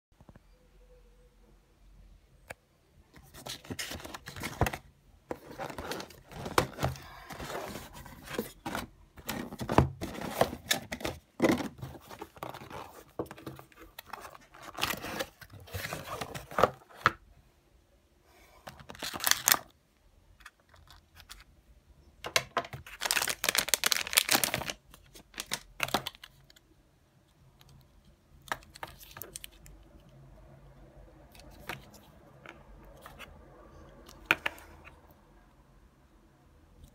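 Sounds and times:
cardboard packaging rustling and tearing: 0:03.3 - 0:17.0, 0:18.8 - 0:19.7, 0:22.8 - 0:26.2.

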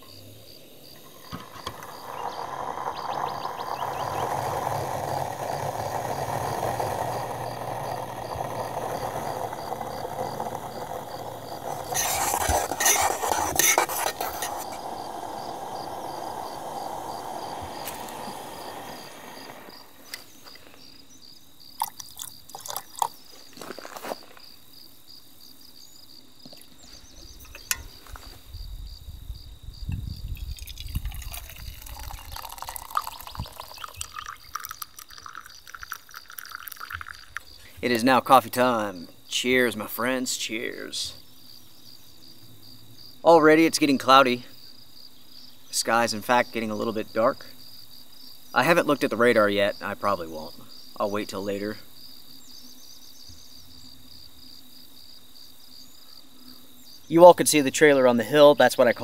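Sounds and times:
camp stove burner hissing: 0:00.0 - 0:24.0, 0:29.9 - 0:41.2
liquid being poured: 0:01.1 - 0:19.9, 0:21.8 - 0:23.2, 0:30.4 - 0:37.6.

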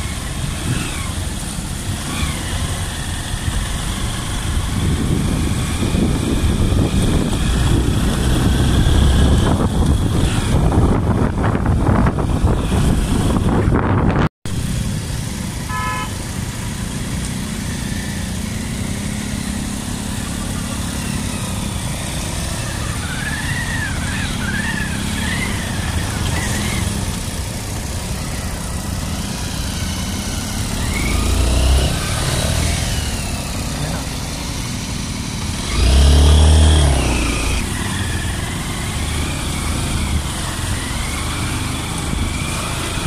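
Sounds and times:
motorcycle horn toot: 0:15.7 - 0:16.2.

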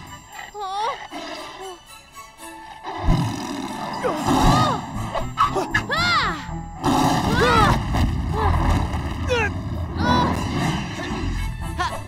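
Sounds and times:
dramatic action music: 0:01.9 - 0:12.0
cartoon tigers roaring and snarling: 0:02.8 - 0:06.2, 0:06.8 - 0:11.5.

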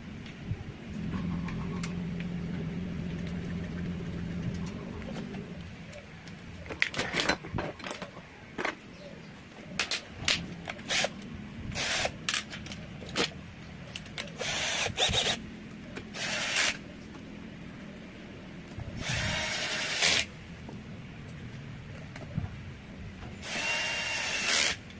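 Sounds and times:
cordless drill running: 0:14.4 - 0:15.4, 0:19.0 - 0:20.3, 0:23.4 - 0:24.8.

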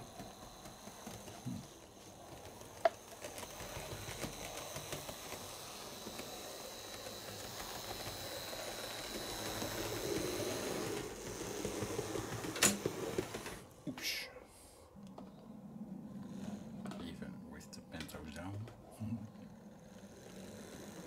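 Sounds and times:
model train motor hum: 0:00.0 - 0:13.8, 0:19.3 - 0:21.0.

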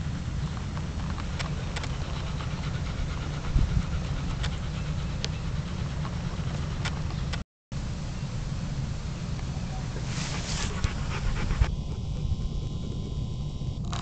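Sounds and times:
low rumble: 0:00.0 - 0:14.0
palm fronds brushing microphone: 0:09.5 - 0:11.7.

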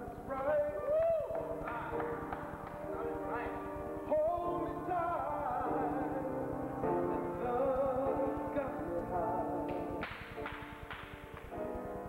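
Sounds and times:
man singing a slow ballad: 0:00.0 - 0:02.0, 0:04.1 - 0:10.0
piano chords: 0:00.0 - 0:12.0.

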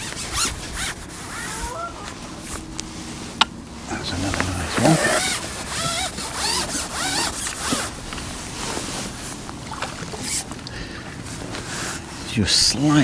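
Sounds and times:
fishing reel whirring: 0:04.8 - 0:08.0.

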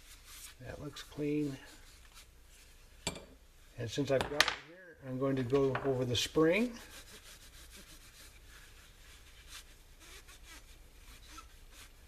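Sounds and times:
paper towel rubbing wire spring: 0:06.7 - 0:12.0.

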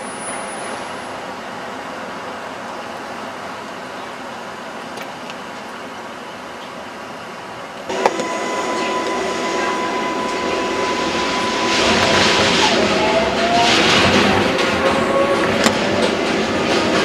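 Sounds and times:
subway train running: 0:00.0 - 0:17.0
motor whine: 0:07.9 - 0:13.0.

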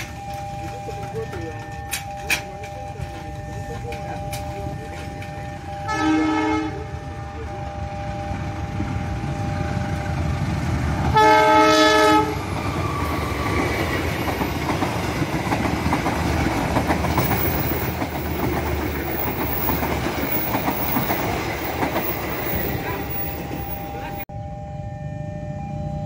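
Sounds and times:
steady train rumble: 0:00.0 - 0:26.0
locomotive horn blast: 0:03.0 - 0:10.3, 0:11.1 - 0:12.5
train wheels clattering over rail joints: 0:12.5 - 0:23.9.

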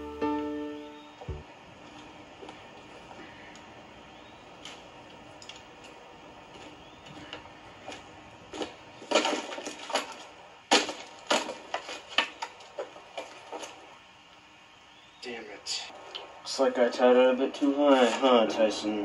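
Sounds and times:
wooden sticks knocking together: 0:08.5 - 0:13.8.

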